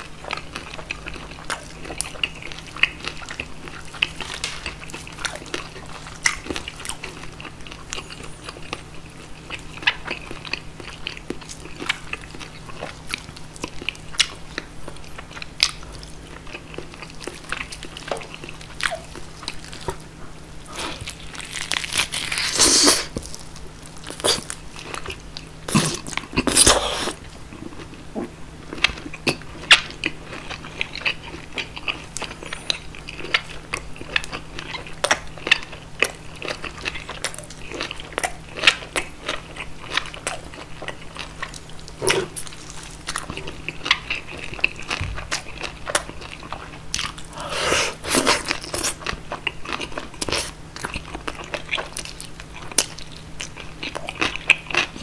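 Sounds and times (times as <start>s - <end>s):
person biting and chewing: 0.3s - 8.8s, 20.6s - 27.9s, 28.7s - 55.0s.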